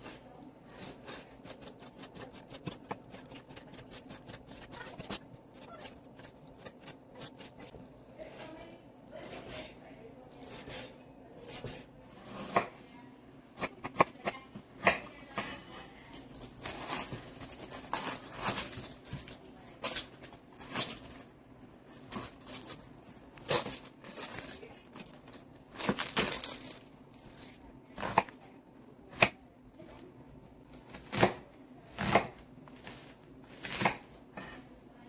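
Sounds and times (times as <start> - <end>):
onion skin rustling and tearing: 0.7 - 9.7, 16.4 - 28.1.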